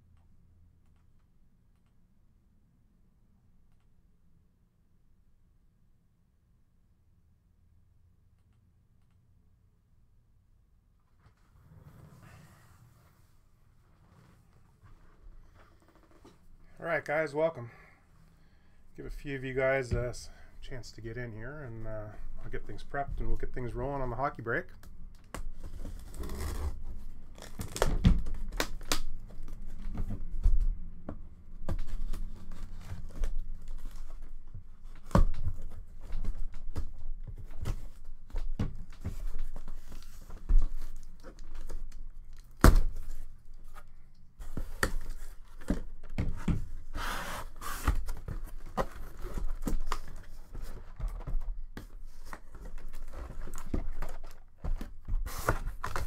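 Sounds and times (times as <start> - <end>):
tape and cardboard tearing: 25.2 - 29.5
cardboard flaps rustling: 31.6 - 56.0.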